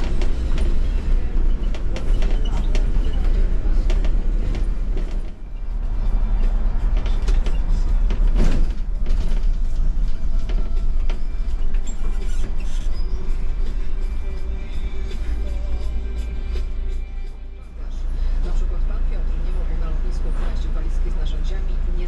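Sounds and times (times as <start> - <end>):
bodywork rattles and knocks: 0.0 - 5.4, 6.4 - 12.8
bus engine and road rumble: 0.0 - 22.0.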